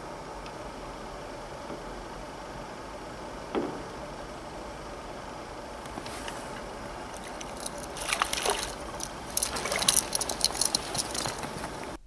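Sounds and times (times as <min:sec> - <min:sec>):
water splashing and sloshing: 0:03.5 - 0:12.0.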